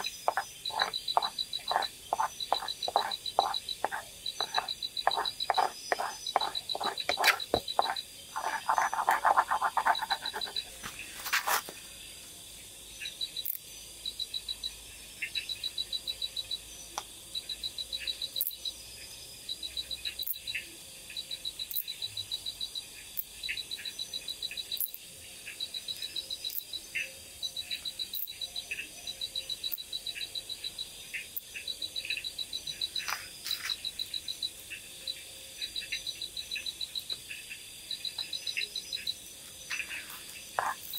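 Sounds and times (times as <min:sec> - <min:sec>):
spoon scraping cooking pot: 0:00.0 - 0:10.7, 0:39.7 - 0:40.9
chirping trills of night animals: 0:00.0 - 0:40.9.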